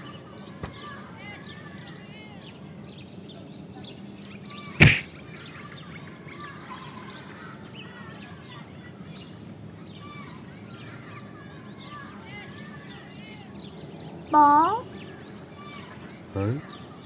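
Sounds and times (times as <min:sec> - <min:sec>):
cartoon impact sound effect: 0:04.8 - 0:05.1.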